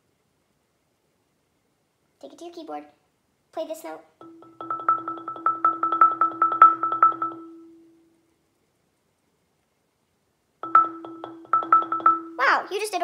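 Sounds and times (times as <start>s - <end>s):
marimba roll with yarn mallets: 4.2s - 7.7s, 10.6s - 12.4s.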